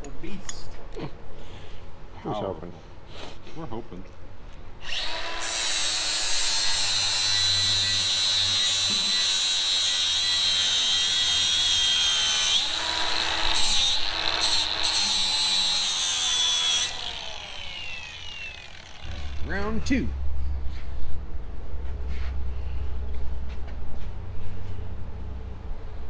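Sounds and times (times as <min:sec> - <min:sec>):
angle grinder grinding metal: 0:04.8 - 0:19.9.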